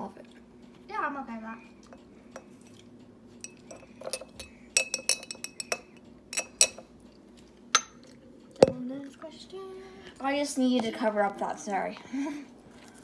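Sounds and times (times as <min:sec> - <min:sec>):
glass jar clinking: 0:03.4 - 0:06.8.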